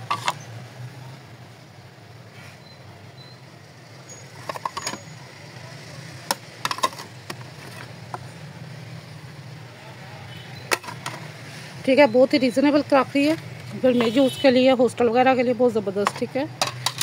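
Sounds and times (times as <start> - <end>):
plates clinking: 4.4 - 5.1, 6.6 - 7.9, 16.0 - 17.0.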